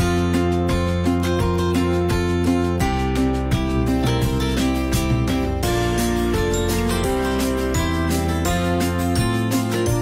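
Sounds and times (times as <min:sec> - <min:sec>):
guitar background music: 0:00.0 - 0:10.0.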